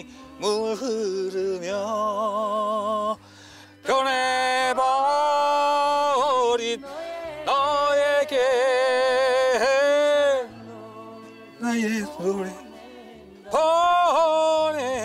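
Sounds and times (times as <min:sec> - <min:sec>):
man singing a slow ballad: 0:00.0 - 0:03.2, 0:03.8 - 0:10.5, 0:11.6 - 0:12.7, 0:13.5 - 0:15.0
man breathing: 0:03.2 - 0:03.8.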